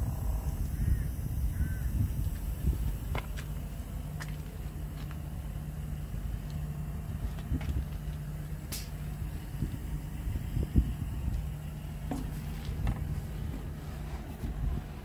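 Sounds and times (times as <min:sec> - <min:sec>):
diesel truck engine idling: 0:00.0 - 0:15.0.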